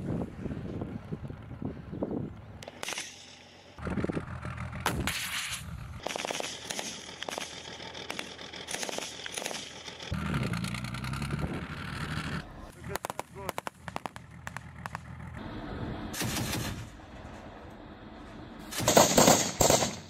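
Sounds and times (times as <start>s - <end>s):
rapid automatic gunfire bursts: 6.0s - 10.2s, 18.8s - 20.0s
single gunshots: 18.7s - 20.0s.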